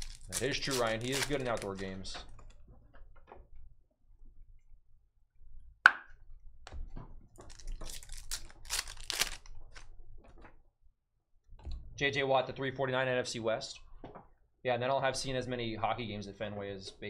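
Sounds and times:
foil wrapper crinkling and tearing: 0.0s - 2.1s, 7.4s - 9.9s.

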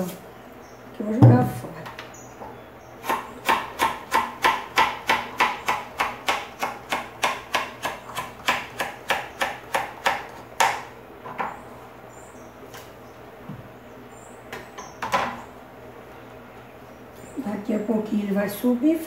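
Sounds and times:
knife chopping on cutting board: 3.0s - 10.8s.

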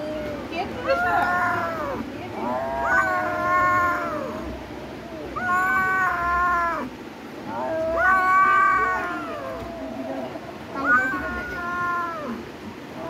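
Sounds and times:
kitten meowing: 0.9s - 4.5s, 5.1s - 6.9s, 7.6s - 9.9s, 10.8s - 12.4s.

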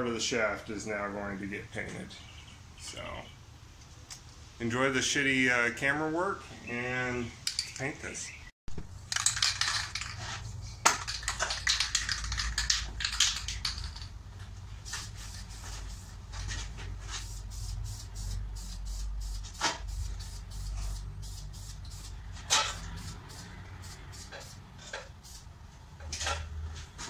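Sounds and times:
aerosol can ball rattling: 8.9s - 14.2s
spray paint bursts: 14.8s - 16.2s, 17.1s - 25.5s.

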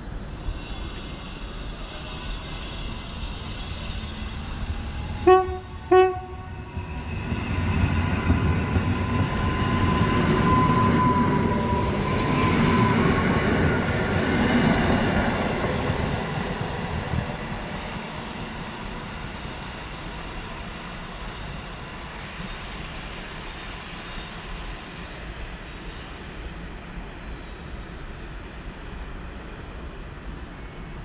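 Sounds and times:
train passing rumble and whine: 0.0s - 31.0s
train horn blasts: 5.2s - 6.8s.

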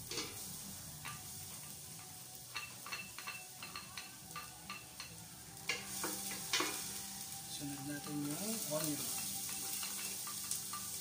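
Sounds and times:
garlic sizzling in oil: 0.0s - 11.0s.

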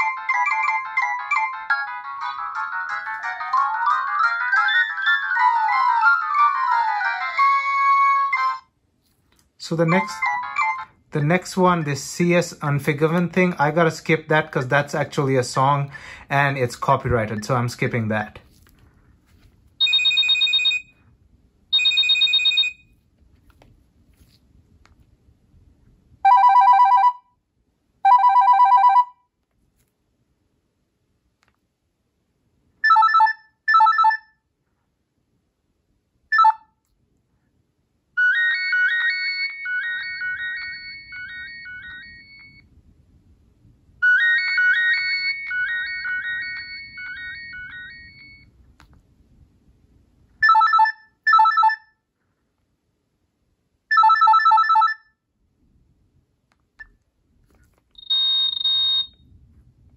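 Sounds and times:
phone ringtones from small speaker: 19.8s - 21.0s, 21.8s - 22.8s, 26.3s - 27.3s, 28.1s - 29.2s, 32.8s - 34.4s, 36.3s - 36.7s, 38.2s - 42.6s, 44.0s - 48.5s, 50.4s - 52.0s, 53.9s - 55.2s, 58.0s - 59.2s.

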